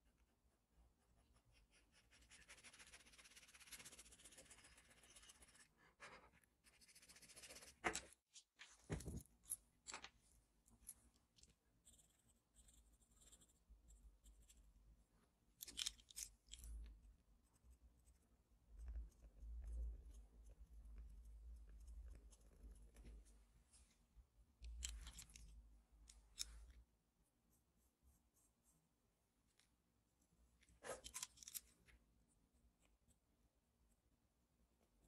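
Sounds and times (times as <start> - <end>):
pencil scratching on paper: 0.0 - 8.0.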